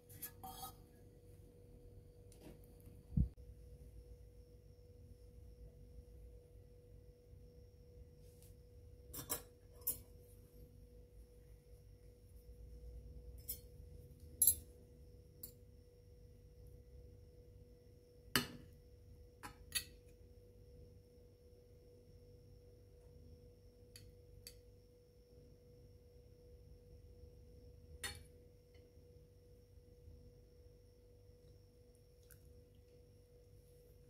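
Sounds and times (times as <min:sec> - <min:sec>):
faint steady hum: 0:00.0 - 0:34.0
cutlery clinking on plate: 0:09.1 - 0:10.0.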